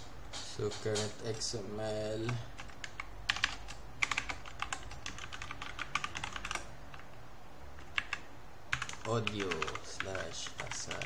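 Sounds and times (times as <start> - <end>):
typing on computer keyboard: 2.2 - 7.1, 7.8 - 11.0.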